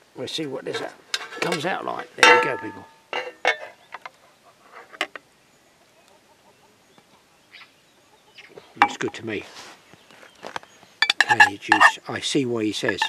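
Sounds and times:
metal spoon scraping a saucepan: 0.8s - 1.7s, 11.0s - 12.0s, 12.8s - 13.0s.

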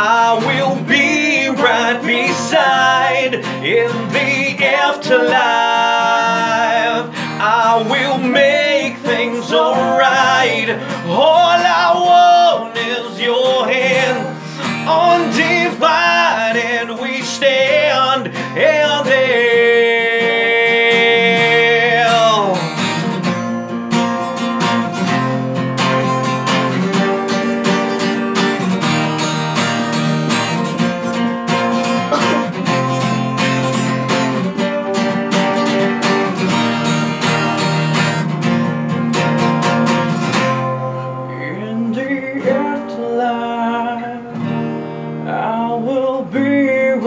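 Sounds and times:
man singing: 0.0s - 22.9s, 32.1s - 35.6s, 40.8s - 44.4s, 45.2s - 47.0s
acoustic guitar strumming: 0.0s - 47.0s.

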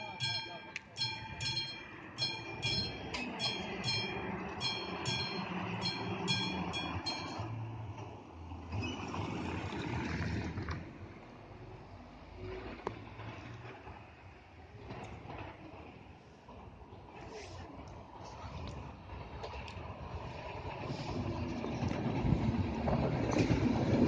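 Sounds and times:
level crossing warning bell: 0.0s - 8.0s.

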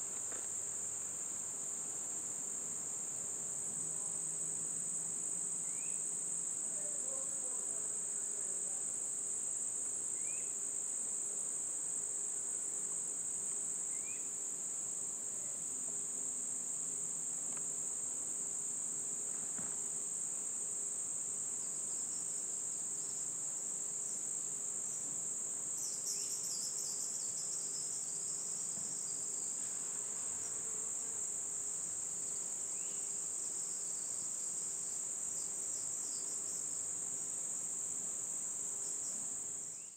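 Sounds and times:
insects singing: 5.3s - 9.2s, 10.0s - 11.1s, 13.2s - 15.7s, 20.8s - 39.9s.

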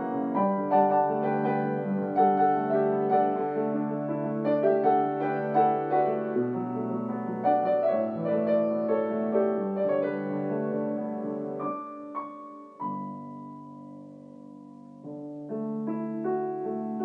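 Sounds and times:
gentle piano music: 0.0s - 17.0s.

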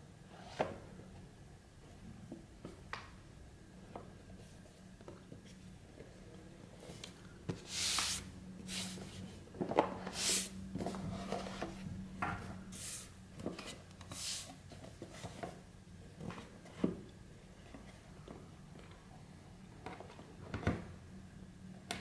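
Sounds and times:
card sliding on card: 7.6s - 9.2s, 10.1s - 11.6s.

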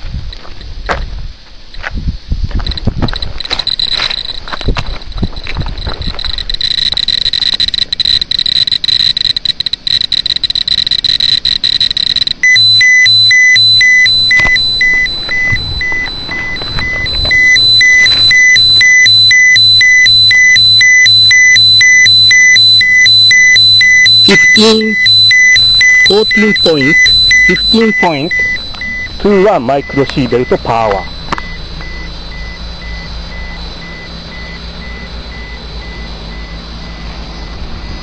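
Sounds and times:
geiger counter clicking: 2.7s - 32.0s
alarm beeping: 2.7s - 38.0s
steady high tone: 3.5s - 38.0s.

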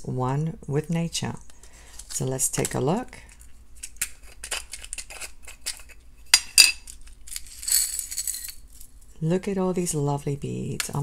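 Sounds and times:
beads rattling in plastic container: 7.3s - 8.7s.

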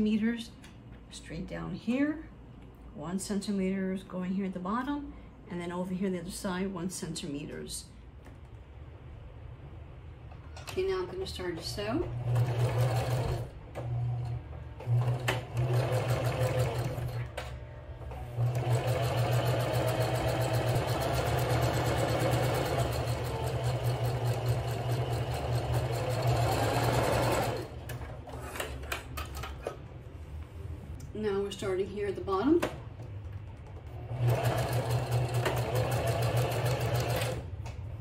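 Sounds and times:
sewing machine stitching: 12.1s - 17.3s, 18.4s - 28.8s, 34.1s - 37.4s.

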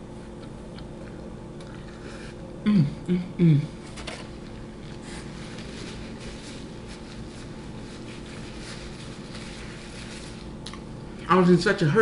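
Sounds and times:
steady low hum: 0.0s - 12.0s
paper napkin rubbing and crinkling: 4.8s - 10.6s.

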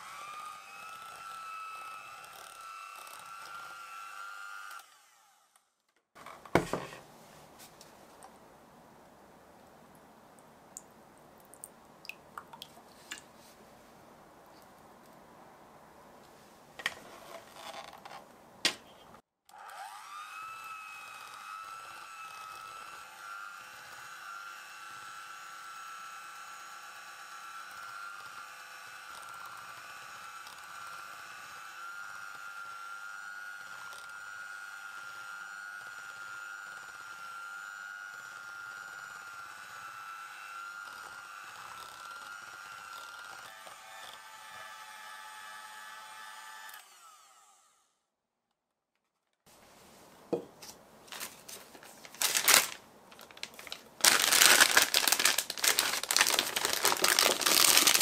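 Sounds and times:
electric hand mixer running: 0.0s - 5.2s, 19.5s - 47.7s, 54.0s - 58.0s.

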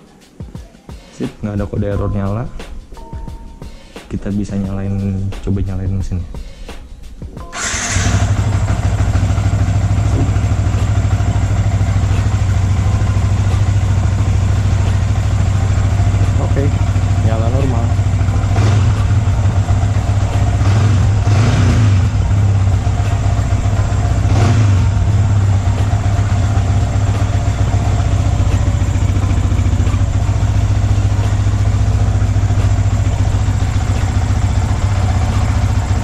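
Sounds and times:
motorcycle engine idling: 7.5s - 36.0s.

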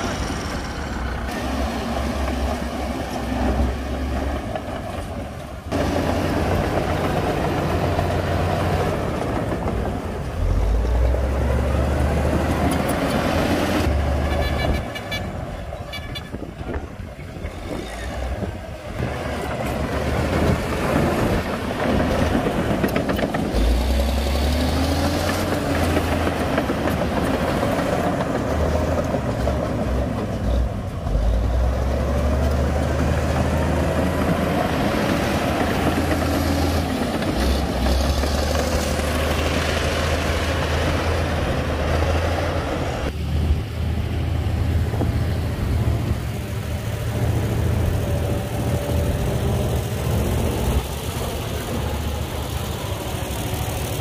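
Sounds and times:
diesel heavy machinery rumbling: 0.0s - 54.0s.

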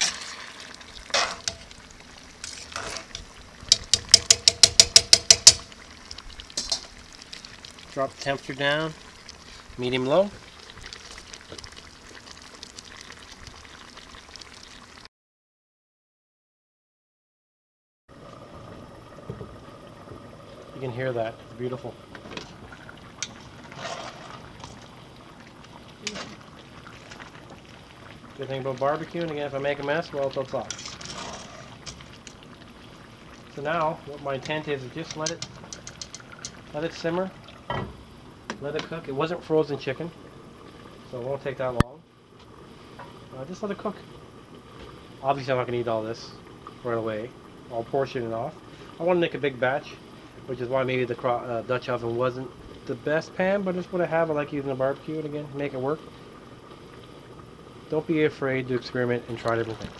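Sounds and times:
tongs swishing in pot: 0.0s - 1.7s, 2.4s - 5.6s, 23.2s - 24.9s, 30.6s - 32.0s
sauce simmering and sizzling: 0.0s - 15.1s, 18.1s - 59.9s
metal tongs clicking: 3.7s - 5.6s.

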